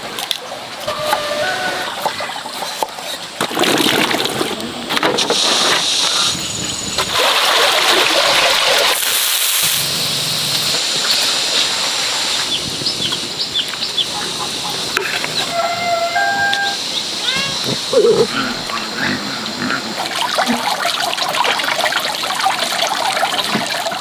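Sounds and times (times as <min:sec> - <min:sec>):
short high chirps: 0:15.5 - 0:16.8.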